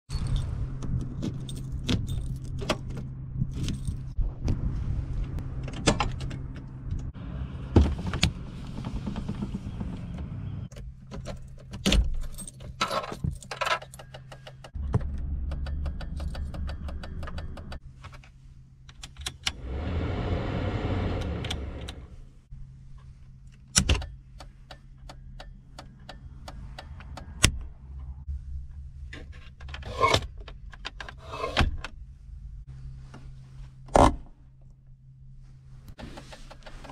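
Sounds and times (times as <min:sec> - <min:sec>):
keys jangling: 0:01.2 - 0:02.6, 0:11.2 - 0:14.3
loud rushing sound: 0:19.6 - 0:22.4.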